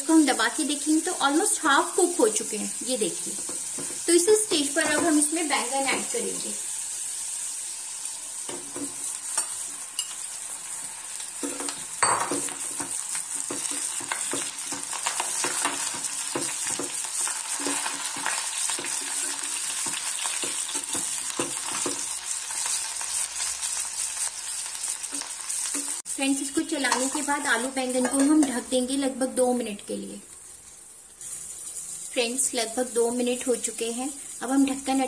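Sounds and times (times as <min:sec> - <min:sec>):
vegetables sizzling in oil: 0:00.0 - 0:35.0
metal spatula scraping pan: 0:11.4 - 0:22.0.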